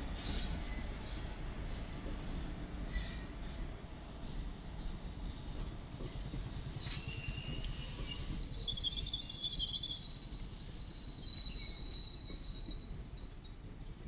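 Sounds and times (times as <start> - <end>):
train coaches rumbling past: 0.0 - 14.0
high wheel squeal: 6.7 - 13.6.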